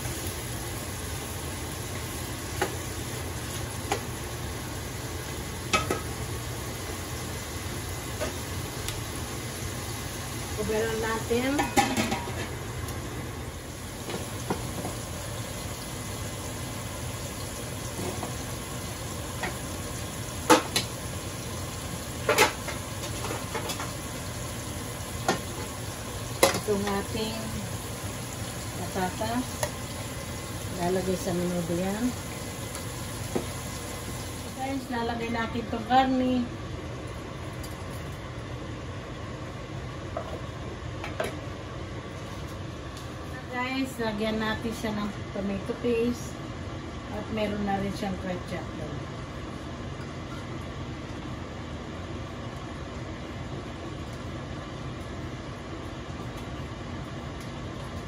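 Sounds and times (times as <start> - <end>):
potatoes sizzling in oil: 0.0 - 36.4
steady kitchen hiss: 0.0 - 58.0.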